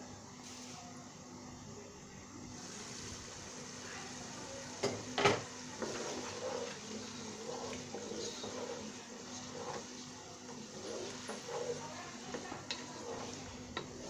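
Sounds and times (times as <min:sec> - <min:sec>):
meat crackling and sizzling: 0:02.6 - 0:14.0
wooden spatula scraping meat: 0:05.4 - 0:14.0.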